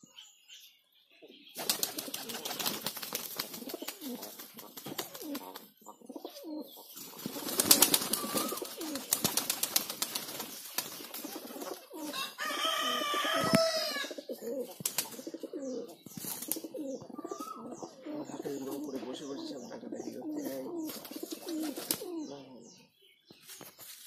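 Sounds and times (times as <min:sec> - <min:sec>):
pigeons cooing: 0:01.2 - 0:22.8
wing flaps: 0:01.6 - 0:05.7, 0:07.0 - 0:12.2, 0:14.7 - 0:15.3, 0:20.9 - 0:22.1.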